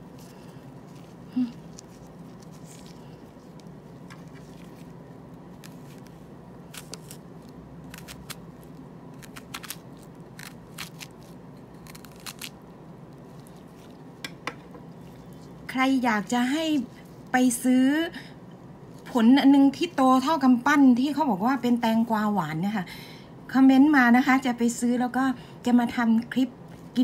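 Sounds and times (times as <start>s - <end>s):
steady low hum: 0.0s - 27.0s
knife slicing crisp fruit: 5.6s - 12.6s.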